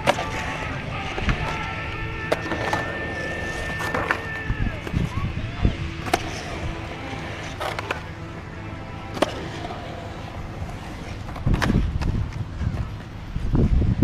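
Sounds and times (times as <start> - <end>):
skateboard clacks: 0.0 - 5.1, 9.1 - 13.2
skateboard wheels rolling on concrete: 0.0 - 14.0.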